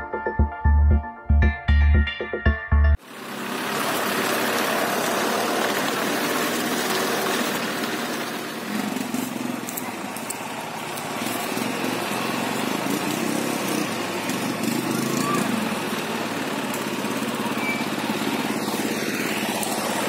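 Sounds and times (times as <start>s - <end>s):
vehicle engine running: 3.0s - 20.0s.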